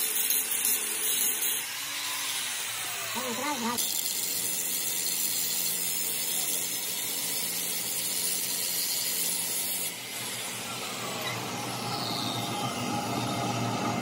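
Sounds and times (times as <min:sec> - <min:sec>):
grinding disc on metal: 0:03.0 - 0:04.2
machine hum: 0:10.0 - 0:14.0.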